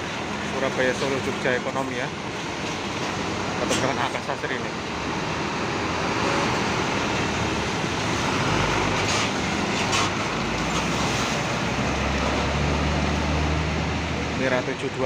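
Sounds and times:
diesel coach engine drone: 0:00.0 - 0:15.0
tyre noise on wet pavement: 0:05.0 - 0:14.6.

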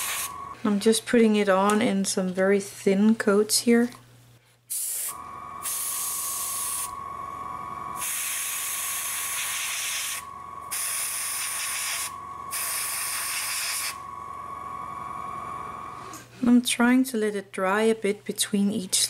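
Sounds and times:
airbrush hissing: 0:00.0 - 0:00.6, 0:04.7 - 0:07.0, 0:07.9 - 0:14.1.

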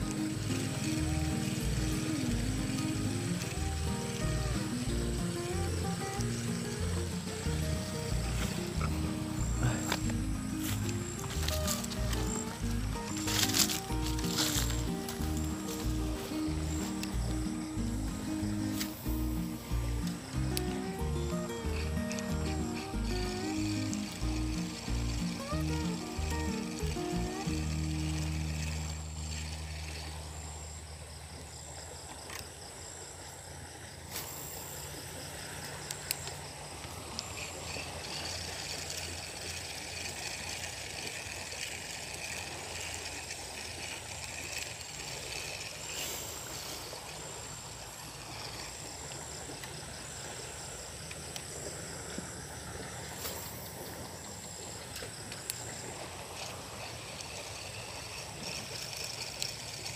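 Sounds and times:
low hum: 0:00.0 - 0:31.5
insects chirping: 0:00.0 - 0:59.9.

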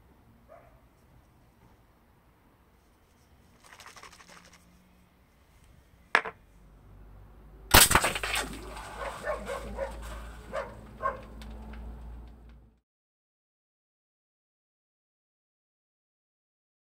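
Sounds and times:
loud sharp crack: 0:07.7 - 0:11.6.

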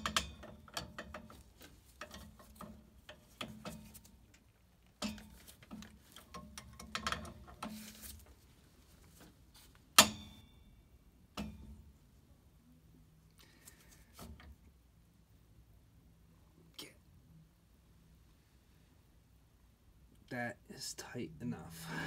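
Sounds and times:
metal clicks and knocks: 0:00.0 - 0:07.9.

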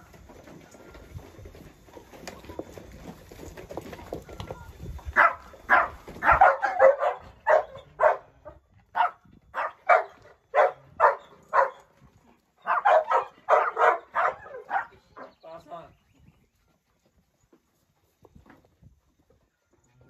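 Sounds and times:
dog barking: 0:05.2 - 0:08.3, 0:08.9 - 0:11.9, 0:12.6 - 0:15.3.

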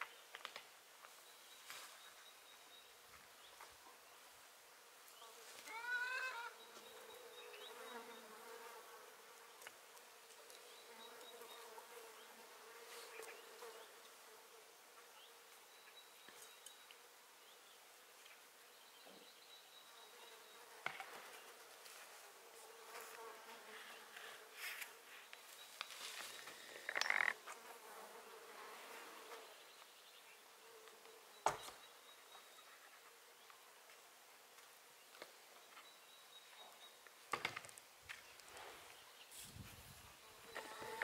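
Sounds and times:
faint insect buzzing: 0:04.9 - 0:18.6, 0:19.4 - 0:34.0, 0:38.2 - 0:41.0.

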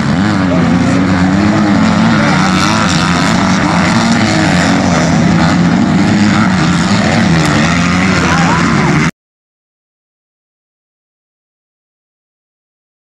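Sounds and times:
dirt bike engines racing: 0:00.0 - 0:09.1
dirt bike revving: 0:00.0 - 0:09.1.

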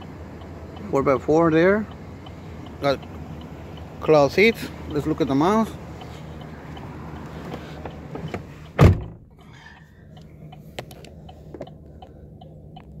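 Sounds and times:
faint ticking inside cab: 0:00.0 - 0:13.0
outside background noise: 0:00.0 - 0:13.0
truck door shutting: 0:07.4 - 0:09.3.

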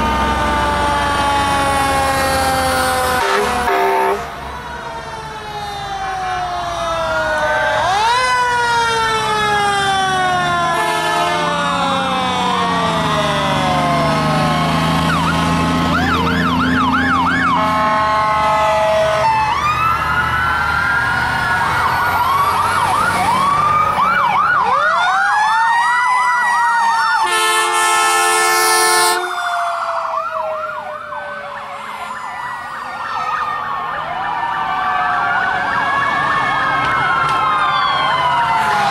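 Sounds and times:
heavy vehicle engine rumble: 0:00.0 - 0:03.2
emergency sirens wailing: 0:00.0 - 0:38.9
loud horn blast: 0:03.0 - 0:04.5, 0:10.7 - 0:11.6, 0:17.4 - 0:19.2, 0:27.2 - 0:29.4.

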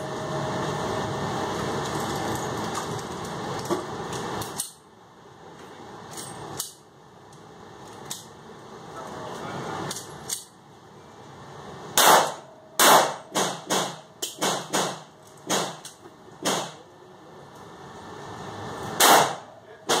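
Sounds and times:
pistol shots echoing indoors: 0:12.0 - 0:15.8, 0:19.0 - 0:20.0.

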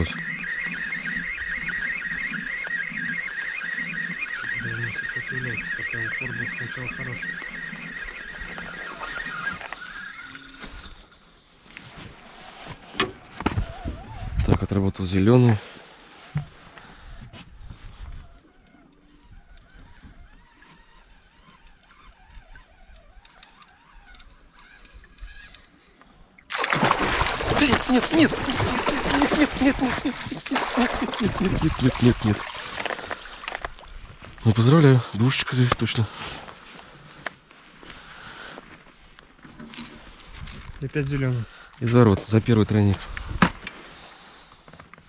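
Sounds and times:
distant bird calls: 0:00.0 - 0:11.6, 0:15.7 - 0:40.2
fishing reel ratchet buzzing: 0:18.5 - 0:25.8.

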